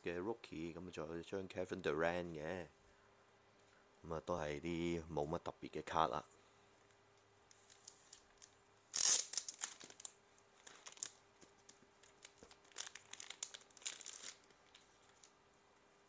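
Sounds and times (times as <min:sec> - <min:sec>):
packaging crinkling: 0:07.5 - 0:15.4
packaging ripping: 0:07.7 - 0:11.2, 0:12.0 - 0:15.3.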